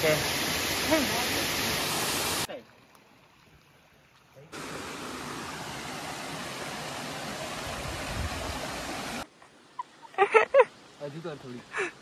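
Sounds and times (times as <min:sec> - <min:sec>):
stream running over rocks: 0:00.0 - 0:12.0.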